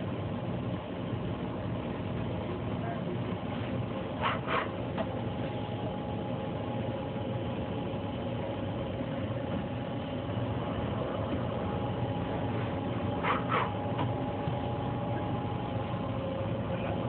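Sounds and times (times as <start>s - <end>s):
machine hum: 0.0s - 17.0s
faint steady tones: 4.9s - 17.0s.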